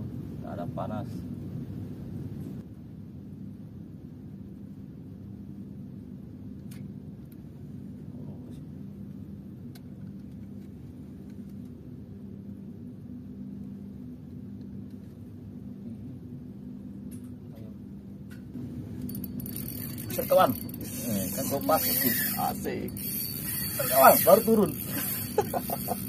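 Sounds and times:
boat engine humming: 0:18.0 - 0:26.0.

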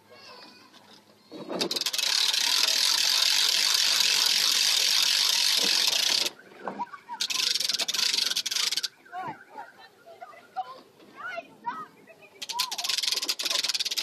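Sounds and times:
trailer winch ratcheting: 0:01.3 - 0:06.4, 0:07.2 - 0:09.0, 0:12.4 - 0:14.0.

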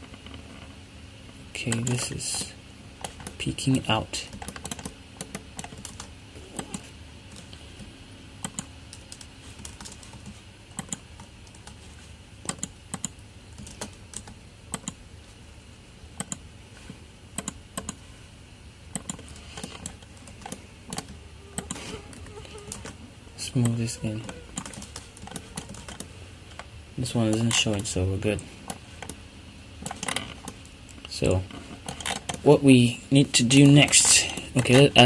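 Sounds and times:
keyboard and mouse clicking: 0:04.3 - 0:07.5, 0:08.4 - 0:11.8, 0:12.4 - 0:15.0, 0:16.2 - 0:16.4, 0:17.4 - 0:18.0, 0:18.9 - 0:23.0, 0:23.6 - 0:26.7.

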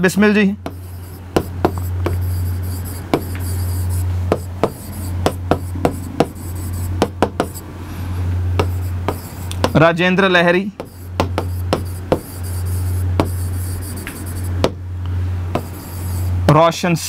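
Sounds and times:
steady low hum: 0:00.0 - 0:17.0
pen tapping and scratching on board: 0:00.6 - 0:07.6, 0:08.6 - 0:09.8, 0:10.8 - 0:14.8, 0:15.6 - 0:16.1.

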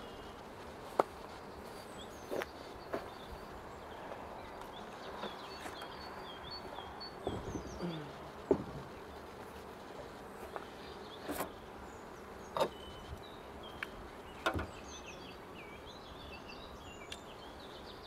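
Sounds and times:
small birds chirping: 0:00.0 - 0:18.0
beehive lid knocks and clicks: 0:08.5 - 0:08.9, 0:14.4 - 0:14.8.

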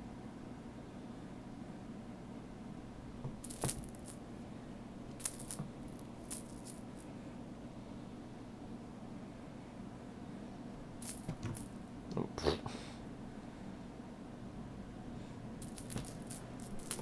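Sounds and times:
cat toy jingling and rattling: 0:03.4 - 0:04.2, 0:05.2 - 0:07.0, 0:11.0 - 0:11.8, 0:15.6 - 0:17.0.

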